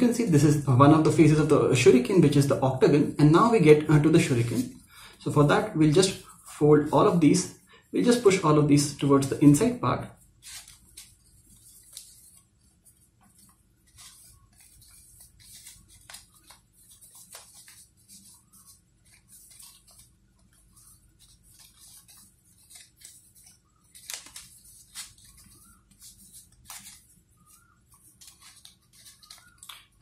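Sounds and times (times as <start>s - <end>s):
paper crinkling and rustling: 9.0s - 30.0s.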